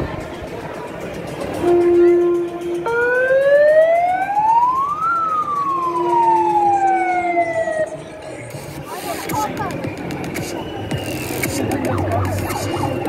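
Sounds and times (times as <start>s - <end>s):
siren wailing: 1.8s - 8.0s, 11.5s - 13.0s.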